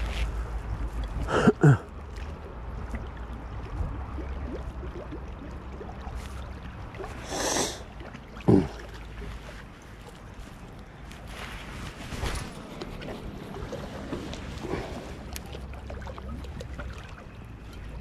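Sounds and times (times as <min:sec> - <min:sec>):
wind rumble on microphone: 0:00.0 - 0:01.7, 0:02.5 - 0:05.2
lake water lapping at shore: 0:00.0 - 0:18.0
water splashing hiss: 0:07.2 - 0:07.9.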